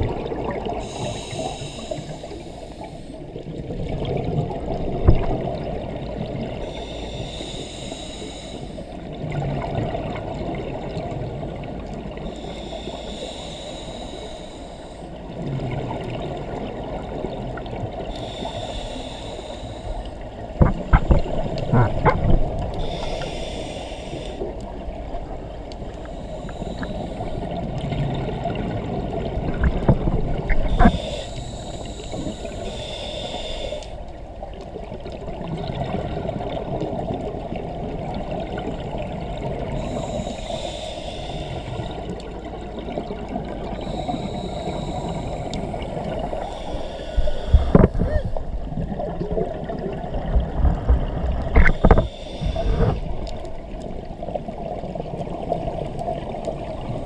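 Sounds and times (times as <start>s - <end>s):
exhaled air bubbling: 0.0s - 57.0s
regulator inhale hiss: 0.7s - 3.4s, 6.6s - 9.2s, 12.1s - 15.3s, 17.8s - 25.2s, 25.8s - 27.8s, 30.5s - 34.9s, 39.4s - 48.6s, 51.4s - 54.5s.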